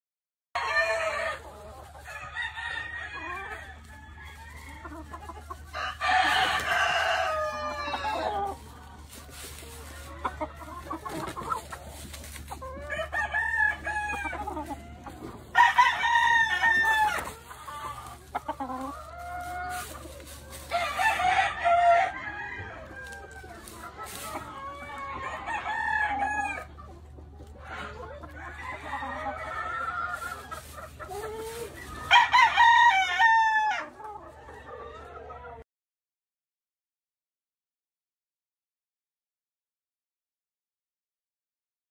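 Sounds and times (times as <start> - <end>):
roosters crowing: 0.6 - 26.8, 27.6 - 35.3
chickens clucking and calling: 0.6 - 35.6.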